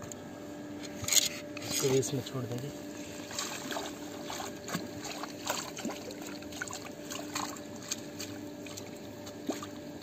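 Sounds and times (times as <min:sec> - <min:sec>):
faint steady hum: 0:00.0 - 0:10.0
water trickling and splashing: 0:03.1 - 0:10.0
small sharp splashes and drips: 0:03.3 - 0:09.8.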